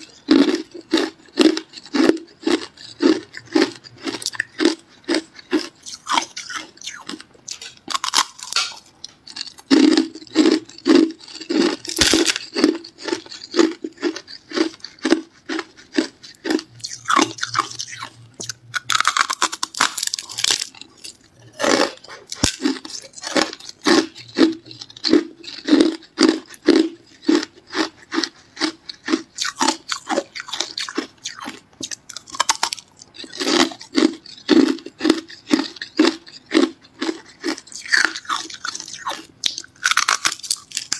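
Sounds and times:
person crunching ice: 0.0 - 40.9.

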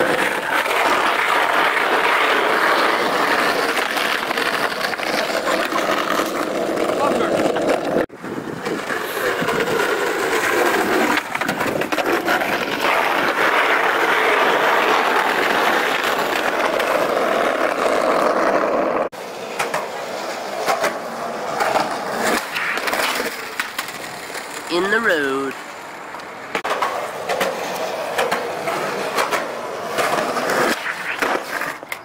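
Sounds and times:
skateboard clacking on pavement: 0.0 - 8.0, 8.6 - 24.7, 25.8 - 32.0
skateboard wheels rolling on asphalt: 0.0 - 32.0.

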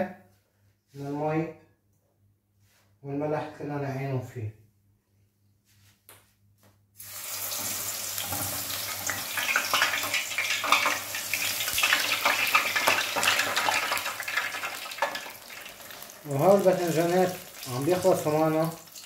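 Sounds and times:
crackling sizzle of deep-frying: 7.0 - 19.0.

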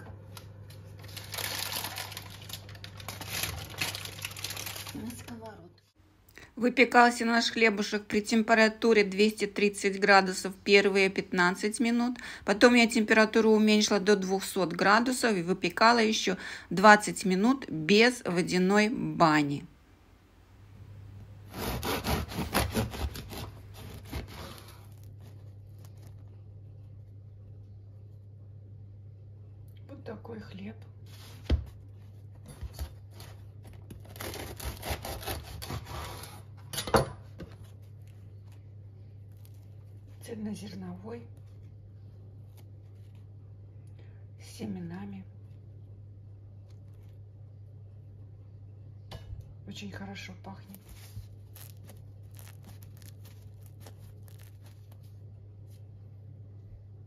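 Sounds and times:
steady low hum: 0.0 - 57.0
bread crust scraping on board: 21.5 - 26.1, 32.6 - 36.5
hands handling crusty bread: 23.1 - 27.2, 50.7 - 56.0.

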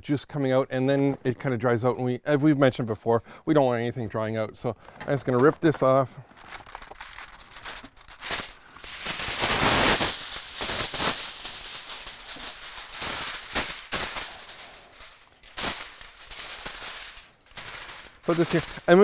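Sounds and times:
foil crinkling and crackling: 4.7 - 19.0
aluminium foil tearing: 5.1 - 19.0.

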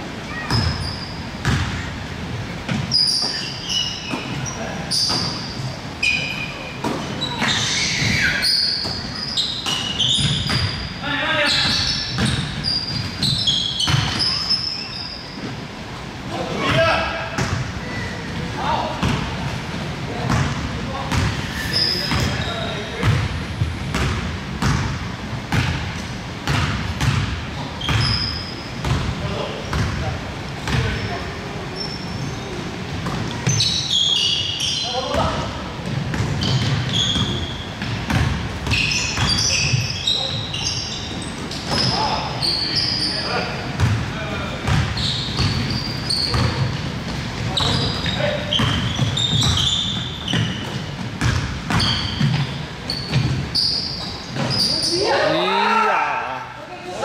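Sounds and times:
sneakers squeaking: 0.2 - 55.9
basketball bouncing on gym floor: 0.3 - 1.8, 2.7 - 3.4, 6.8 - 10.8, 11.5 - 14.5, 16.6 - 17.7, 19.0 - 19.5, 20.2 - 21.4, 22.0 - 31.0, 32.4 - 33.7, 35.1 - 42.2, 43.7 - 54.7
short high squeaks: 2.9 - 15.4, 21.4 - 22.7, 38.7 - 43.4, 45.0 - 46.7, 47.5 - 50.8, 51.7 - 55.3.

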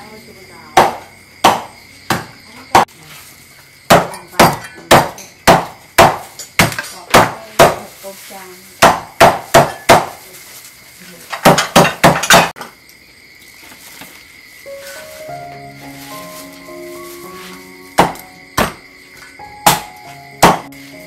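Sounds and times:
cleaver chopping on wooden block: 0.8 - 2.9, 3.9 - 7.8, 8.8 - 10.2, 18.0 - 18.8, 19.6 - 20.7.

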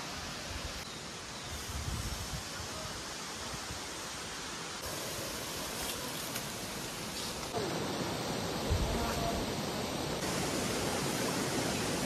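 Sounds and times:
waterfall rushing: 2.4 - 12.0.

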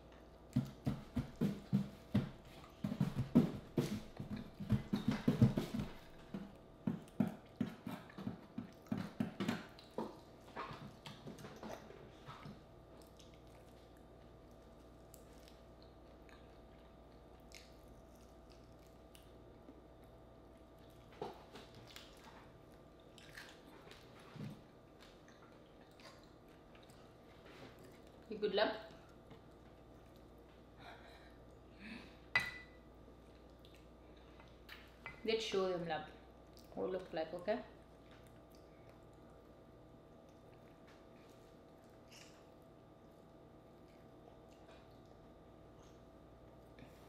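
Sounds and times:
person chewing: 7.0 - 28.3.

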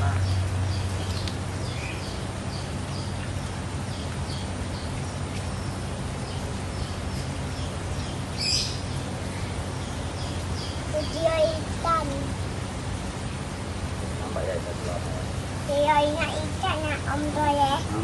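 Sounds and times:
bird chirping: 0.0 - 11.6
pond aerator humming: 0.0 - 18.0.

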